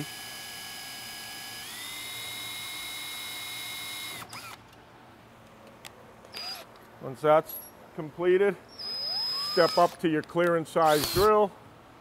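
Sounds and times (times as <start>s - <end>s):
cordless drill whining: 0.0s - 4.6s, 6.4s - 6.7s, 8.8s - 10.0s, 10.8s - 11.4s.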